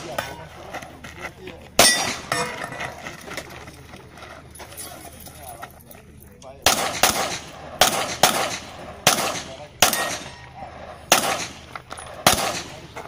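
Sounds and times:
gunshots: 1.8 - 2.4, 6.6 - 13.0.

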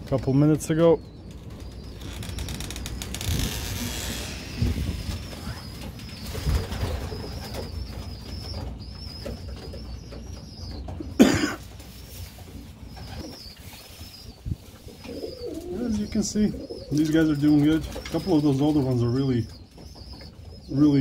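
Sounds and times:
pigeons cooing: 4.5 - 21.0.

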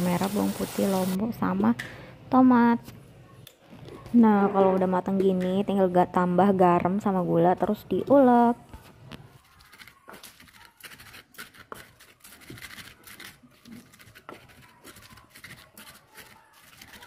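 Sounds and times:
wooden pestle scraping clay mortar: 9.3 - 17.0.

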